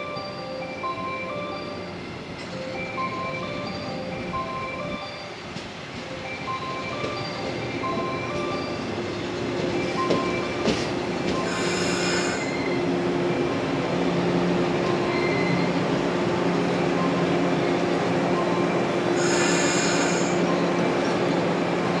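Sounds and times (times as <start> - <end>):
electric train running hum: 0.0 - 22.0
high-pitched wheel squeal: 15.1 - 15.8.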